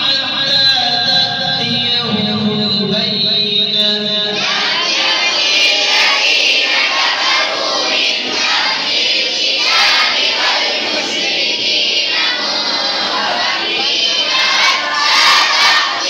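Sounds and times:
boys chanting in chorus: 4.1 - 16.0.

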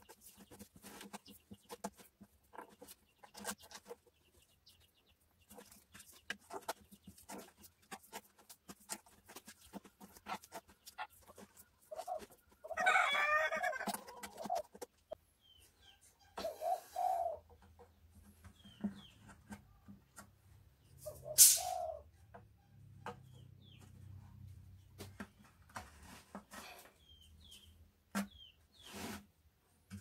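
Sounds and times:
chickens clucking: 0.0 - 29.0
rooster crowing: 12.7 - 13.8
chicken squawk: 12.7 - 13.9.

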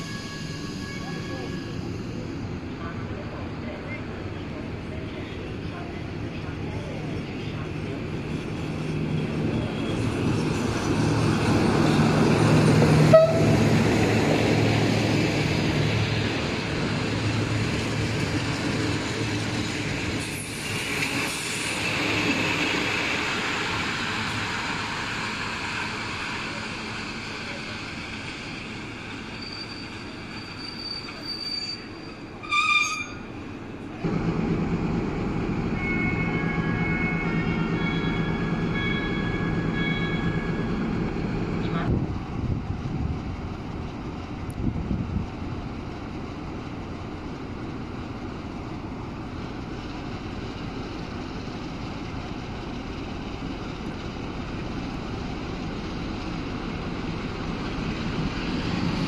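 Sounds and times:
high squeal: 0.0 - 2.1, 29.3 - 33.3, 35.8 - 40.8
rail and wheel noise: 0.0 - 59.0
locomotive engine: 0.9 - 59.0.

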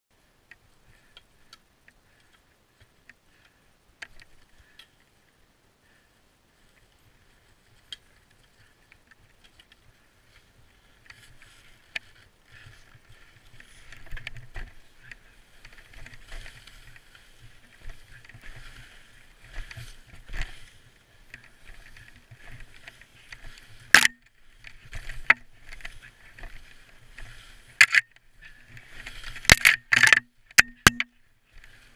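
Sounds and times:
gear being handled clicks: 19.4 - 31.8.

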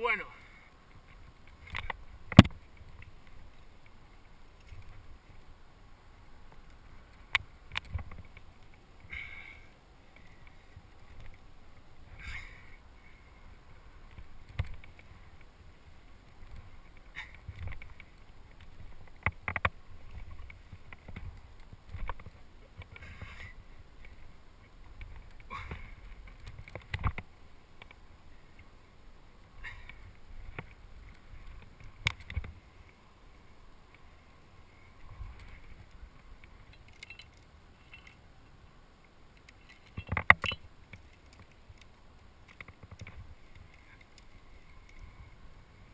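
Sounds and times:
sharp clicks and knocks: 1.6 - 3.1, 17.3 - 23.0, 25.0 - 28.0, 39.4 - 41.9.

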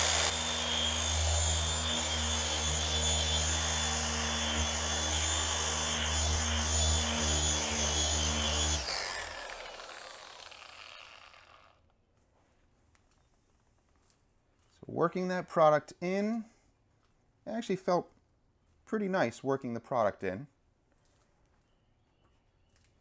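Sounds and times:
polisher humming and whining: 0.0 - 11.4.

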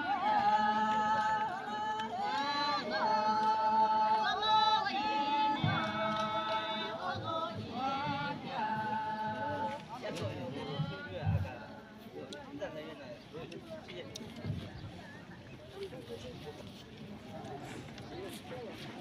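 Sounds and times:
women singing folk song: 0.0 - 12.2.

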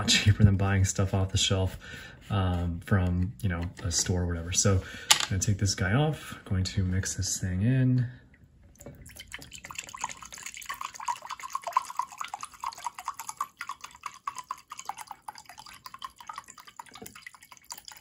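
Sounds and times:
liquid pouring into a glass cup: 8.7 - 18.0.

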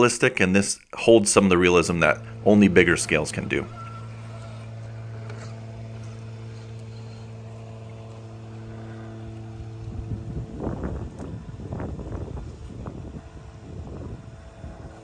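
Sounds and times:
rc truck motor whining: 1.6 - 9.8.

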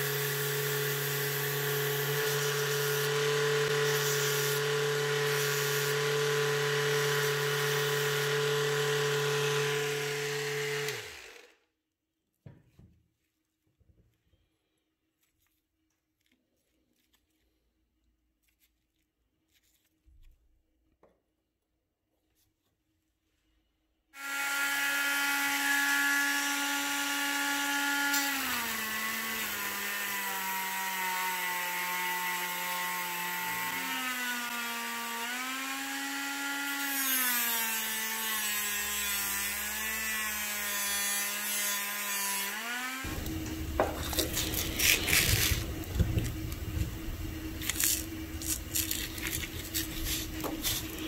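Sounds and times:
rotary tool motor whine: 0.0 - 11.6
steady low hum: 43.1 - 51.0.

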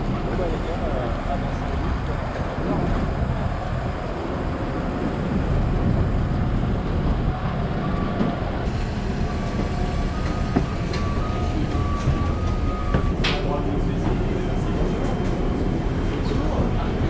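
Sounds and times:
low rumble of airport machinery: 0.0 - 17.0
wind on microphone: 1.1 - 17.0
faint steady whine: 5.1 - 17.0.

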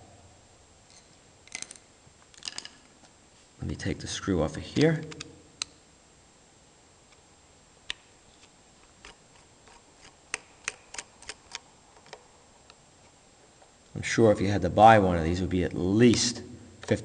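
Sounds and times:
screwdriver clicking on screw: 9.0 - 12.2.

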